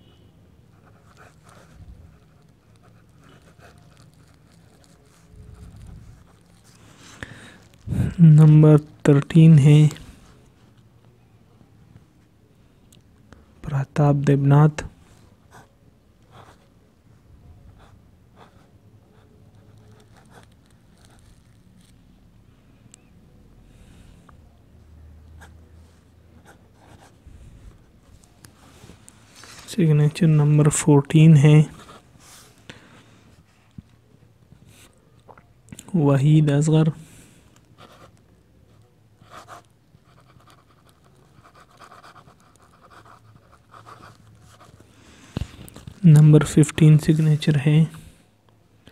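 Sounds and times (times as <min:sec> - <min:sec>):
pen scratching on paper: 0:00.7 - 0:07.2, 0:16.3 - 0:16.7, 0:19.6 - 0:21.9, 0:26.4 - 0:27.9, 0:31.6 - 0:32.4, 0:37.8 - 0:38.2, 0:39.2 - 0:44.8.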